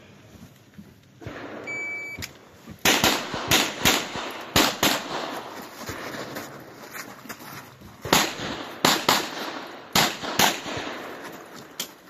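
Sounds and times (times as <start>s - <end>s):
shot timer beep: 1.6s - 2.3s
pistol shots in quick pairs: 2.8s - 6.0s, 8.0s - 11.3s.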